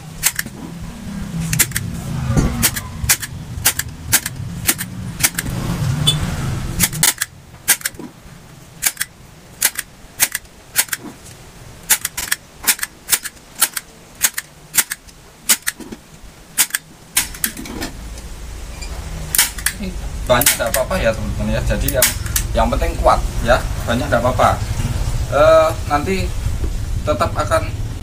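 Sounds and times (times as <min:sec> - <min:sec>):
low rumble: 0:00.0 - 0:10.0, 0:17.4 - 0:28.0
staple gun clacking: 0:00.2 - 0:00.5, 0:01.5 - 0:01.9, 0:02.6 - 0:05.5, 0:06.8 - 0:08.0, 0:08.8 - 0:11.0, 0:11.9 - 0:16.0, 0:16.6 - 0:17.6, 0:19.4 - 0:19.8, 0:20.4 - 0:20.9, 0:21.9 - 0:22.5.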